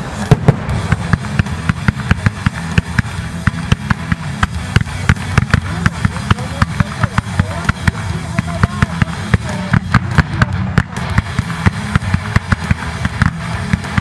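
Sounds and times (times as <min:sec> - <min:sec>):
fast drum beat with heavy bass: 0:00.0 - 0:14.0
fireworks going off: 0:00.0 - 0:14.0.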